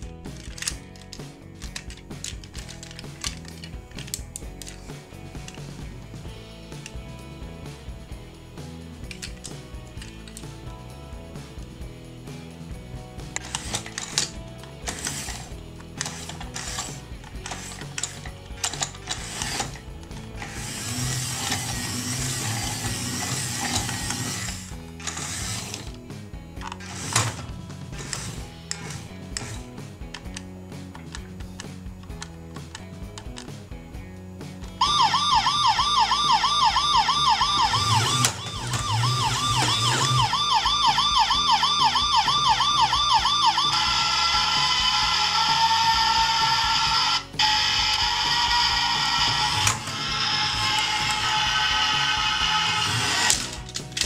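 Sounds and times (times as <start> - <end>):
toy gears whirring and rattling: 0.0 - 5.9, 9.0 - 10.8, 13.2 - 33.6, 34.8 - 54.0
background music: 0.0 - 54.0
toy parts clicking: 0.3 - 5.7, 9.0 - 10.5, 13.3 - 26.0, 26.6 - 33.5, 34.8 - 54.0
toy electronic siren wailing: 34.8 - 53.6
toy click: 34.8 - 54.0.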